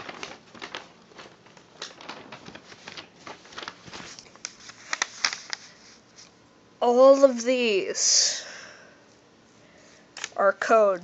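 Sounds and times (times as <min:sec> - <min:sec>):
paper rustling and crinkling: 0:00.0 - 0:06.4.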